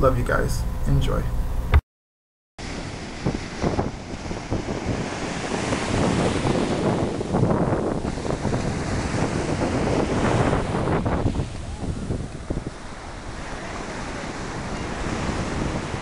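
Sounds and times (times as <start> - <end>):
ocean surf washing over sand: 2.6 - 16.0
wind buffeting microphone: 2.6 - 16.0.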